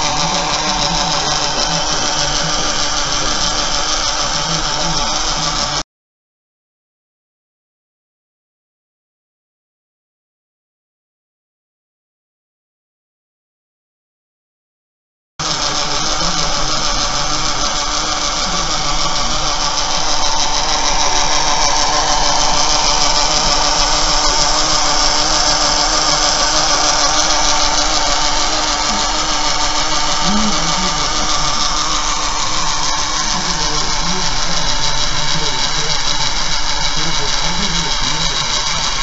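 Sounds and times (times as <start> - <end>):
electric motor whirring: 0.0 - 5.8, 15.4 - 39.0
faint motor hum: 0.0 - 5.8, 15.4 - 39.0.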